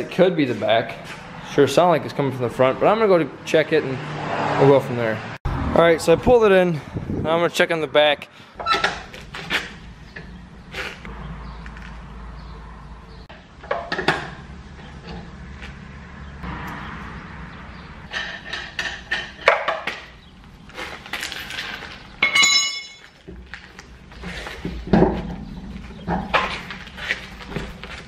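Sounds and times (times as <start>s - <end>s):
lug nuts clinking on concrete: 21.2s - 23.4s
clear metallic ring: 22.2s - 23.1s
metal knocks and clinks: 22.2s - 23.2s.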